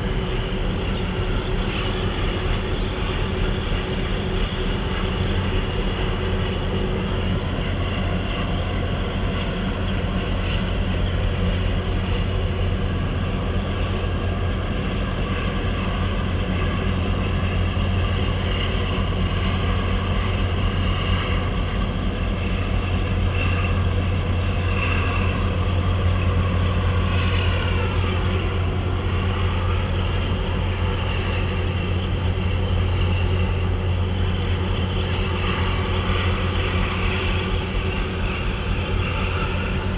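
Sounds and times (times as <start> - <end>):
marine diesel engines droning: 0.0 - 39.9.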